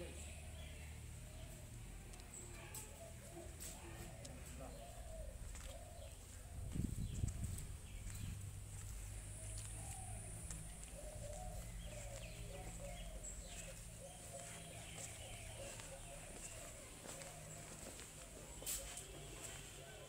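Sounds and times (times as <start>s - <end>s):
pigeons cooing: 3.0s - 6.8s, 9.3s - 18.0s
bird chirps: 9.4s - 17.8s.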